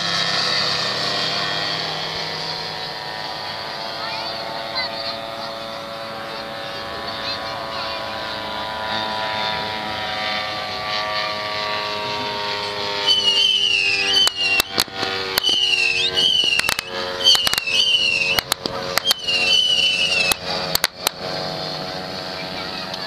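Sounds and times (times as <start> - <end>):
model aircraft engines droning: 0.0 - 23.0
high wavering whistle: 12.9 - 20.4.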